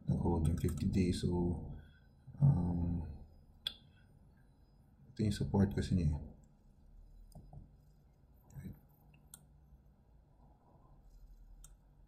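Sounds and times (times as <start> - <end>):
computer mouse clicks: 0.4 - 1.0, 8.5 - 9.5, 11.5 - 11.8.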